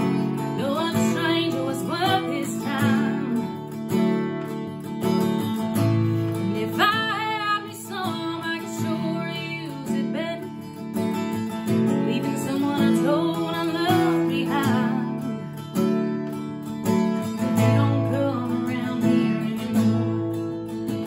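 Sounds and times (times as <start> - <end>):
woman singing: 0.0 - 4.4, 5.8 - 15.9, 16.9 - 21.0
strummed acoustic guitar: 0.0 - 21.0.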